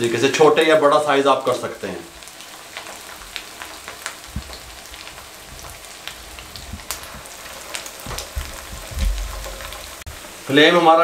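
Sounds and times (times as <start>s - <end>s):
oil sizzling in frying pan: 0.0s - 11.0s
crackling pops: 2.7s - 10.0s.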